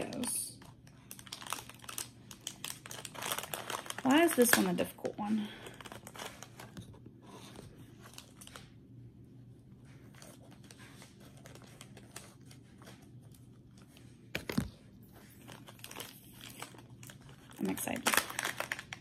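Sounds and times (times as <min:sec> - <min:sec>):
plastic bag crackle: 0:00.0 - 0:06.8, 0:15.3 - 0:19.0
plastic bag crinkling: 0:00.0 - 0:06.9, 0:07.9 - 0:08.8, 0:10.0 - 0:19.0.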